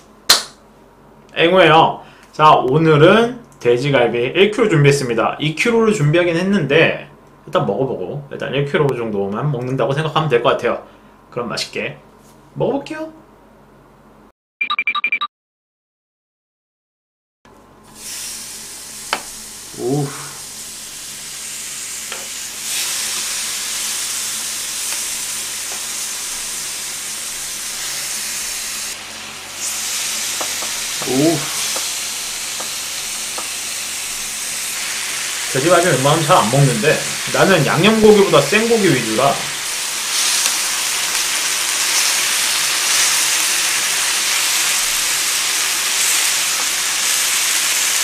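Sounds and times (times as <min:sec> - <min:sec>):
meat sizzling on a griddle: 0:18.0 - 0:48.0.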